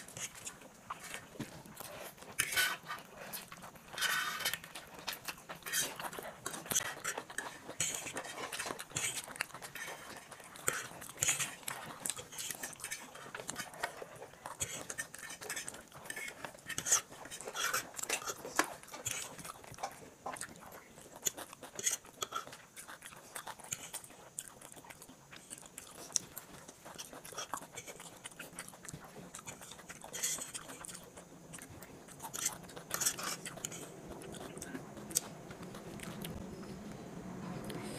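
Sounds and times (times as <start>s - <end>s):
chewing noodles: 0.0s - 37.9s
forks scraping on plates: 2.4s - 2.8s.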